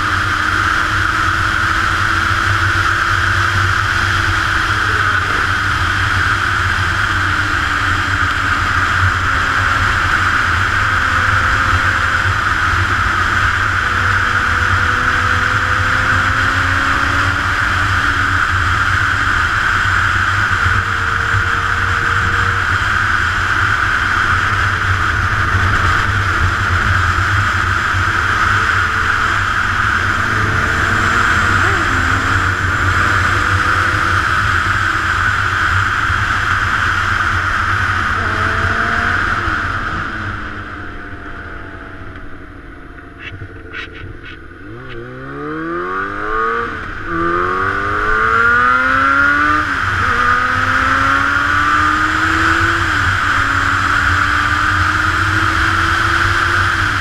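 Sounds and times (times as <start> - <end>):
loud wind rush: 0.0 - 42.8
faint motorcycle engine: 0.0 - 57.0.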